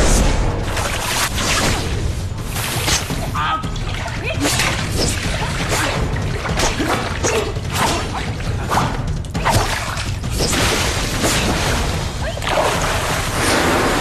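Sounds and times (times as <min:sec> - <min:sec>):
background music: 0:00.0 - 0:14.0
water splashing and spraying: 0:00.0 - 0:14.0.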